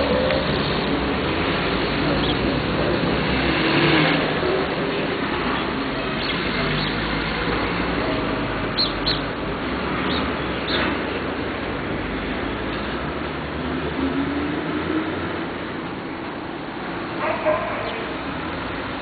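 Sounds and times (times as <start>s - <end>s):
street traffic hum: 0.0s - 19.0s
bird chirps: 5.6s - 7.0s, 8.7s - 9.3s, 10.0s - 10.9s.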